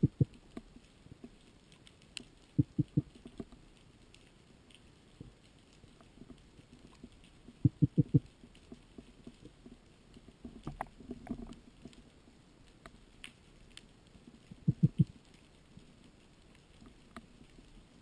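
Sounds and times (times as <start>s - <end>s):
underwater crackling clicks: 0.0s - 12.1s, 12.7s - 15.8s
low thumps: 2.6s - 3.0s.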